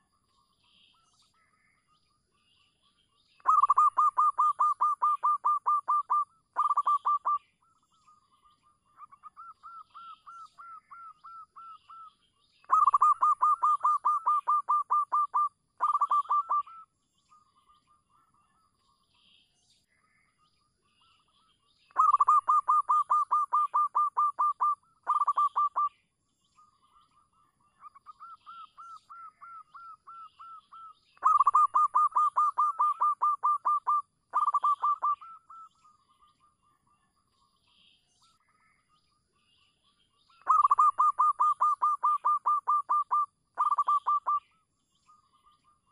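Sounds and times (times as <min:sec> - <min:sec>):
dove cooing: 0:03.4 - 0:07.4, 0:12.7 - 0:16.8, 0:22.0 - 0:25.9, 0:31.2 - 0:35.6, 0:40.5 - 0:44.4.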